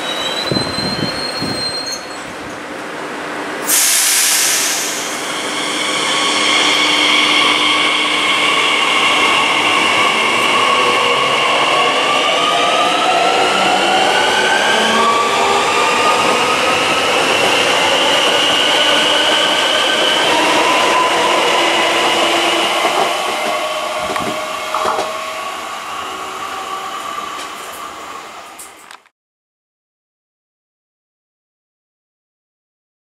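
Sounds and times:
wheels rushing on rail: 0.0 - 28.9
electric train whine: 3.2 - 29.0.

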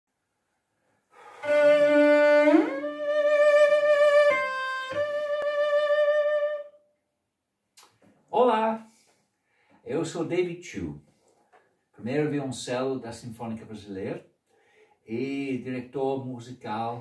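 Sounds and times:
bowed cello: 1.3 - 6.6.

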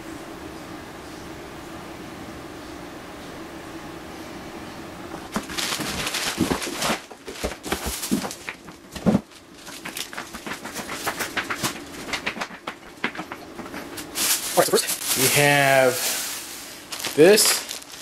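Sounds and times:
faint steady hum: 0.0 - 18.0
plastic wrapping crinkling: 5.3 - 18.0.

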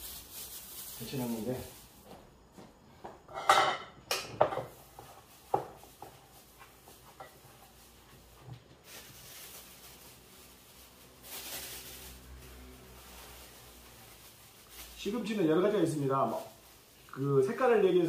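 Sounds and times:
dishes clattering: 3.3 - 6.1.

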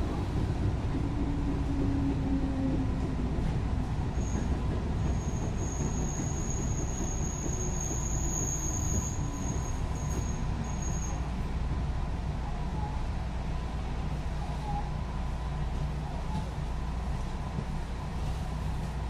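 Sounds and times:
train wheels rumbling: 0.0 - 11.6
high wheel squeal: 5.1 - 11.2.

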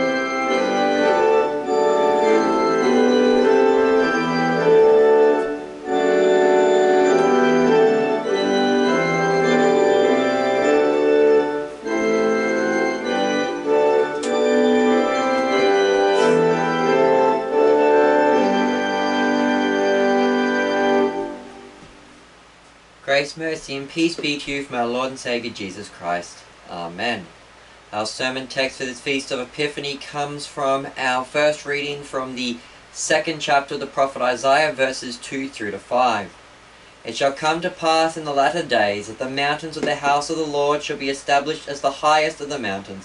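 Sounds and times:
organ playing sustained chords: 0.0 - 22.4.

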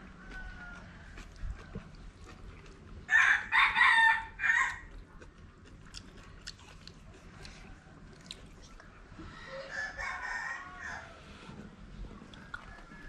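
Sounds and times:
rooster crowing: 0.0 - 1.2, 3.1 - 4.9, 9.3 - 11.3, 12.5 - 13.0.

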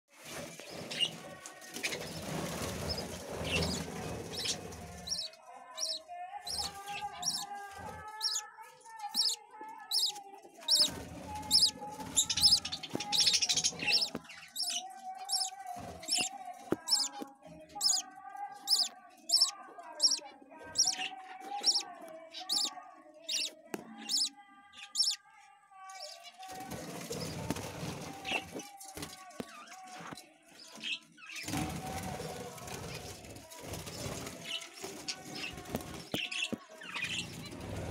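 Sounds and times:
budgerigars chirping: 2.9 - 7.5, 8.2 - 8.4, 9.1 - 16.3, 16.9 - 17.2, 17.8 - 18.0, 18.7 - 21.8, 22.4 - 22.7, 23.3 - 24.3, 25.0 - 25.2.

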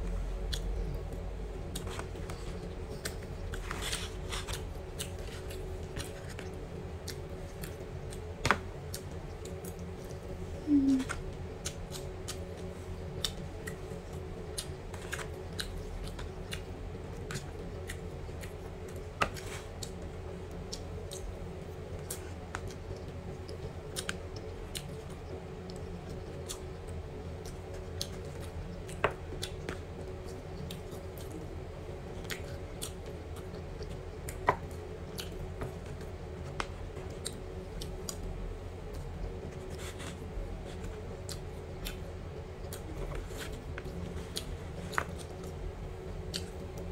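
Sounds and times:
steady low hum: 0.0 - 46.9
chewing: 32.2 - 38.3, 46.2 - 46.6.

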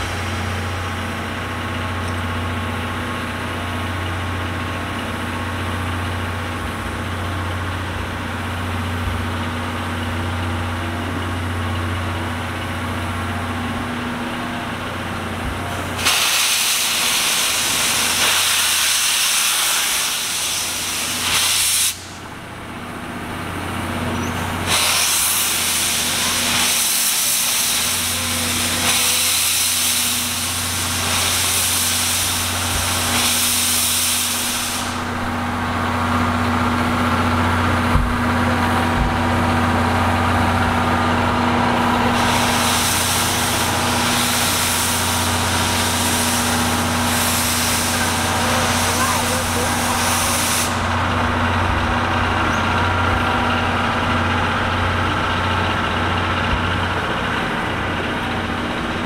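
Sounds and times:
loud steam hiss: 15.8 - 22.3, 24.5 - 37.9, 38.5 - 59.0.

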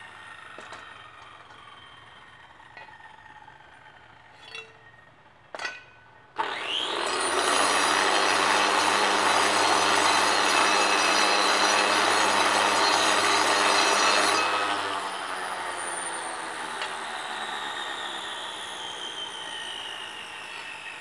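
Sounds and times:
angle grinder cutting stone: 6.4 - 21.0.

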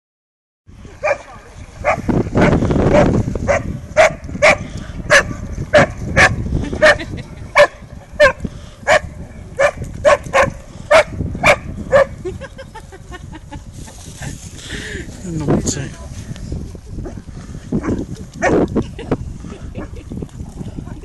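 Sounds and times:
dog barking: 1.0 - 12.1.

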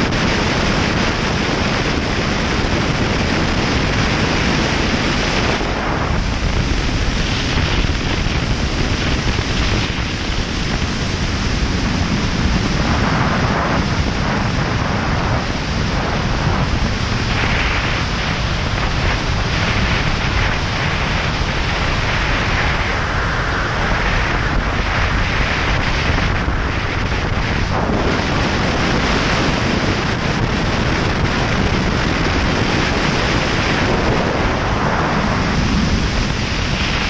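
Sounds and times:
wind rushing over microphone: 0.0 - 37.0.

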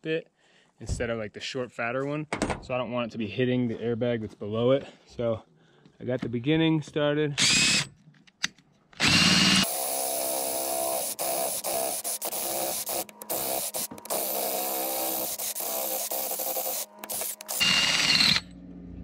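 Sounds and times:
cordless drill boring sheet metal: 9.0 - 18.5.

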